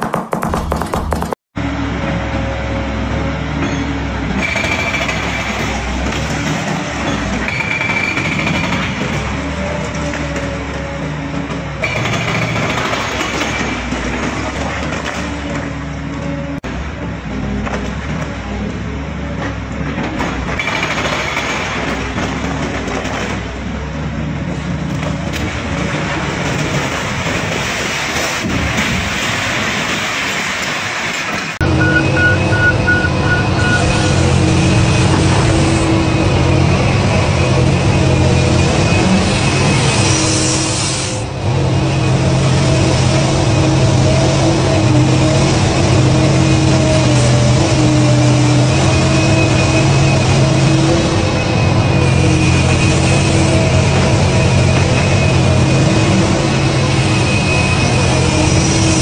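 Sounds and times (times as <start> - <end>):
excavator diesel engine running: 0.7 - 59.0
concrete breaking and collapsing: 11.9 - 15.7, 20.0 - 23.6, 24.5 - 31.6.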